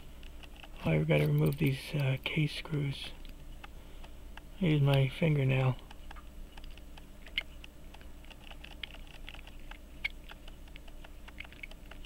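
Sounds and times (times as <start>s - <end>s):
small clicks and light scrapes: 0.1s - 12.0s.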